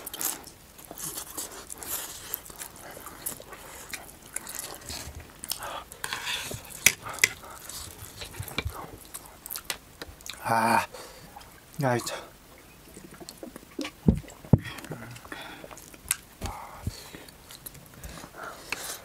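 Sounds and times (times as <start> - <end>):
people slurping noodles: 0.0 - 9.6.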